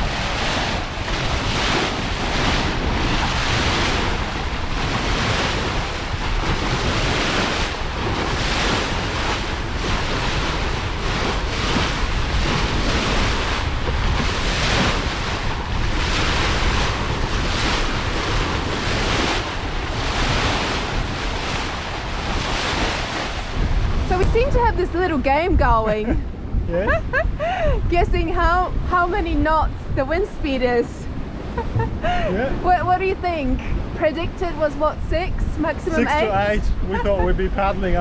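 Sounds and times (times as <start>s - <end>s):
water splashing along hull: 0.0s - 38.0s
wind buffeting microphone: 0.0s - 38.0s.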